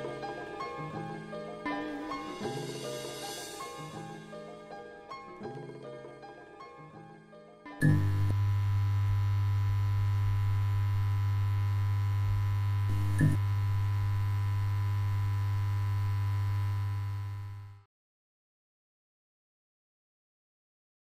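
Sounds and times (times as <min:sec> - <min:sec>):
low electrical hum: 0:07.8 - 0:17.8.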